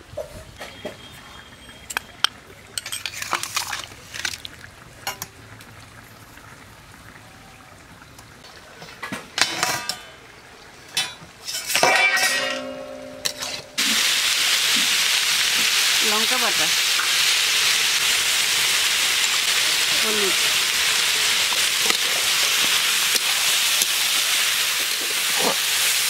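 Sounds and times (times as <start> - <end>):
metallic ring: 11.8 - 13.8.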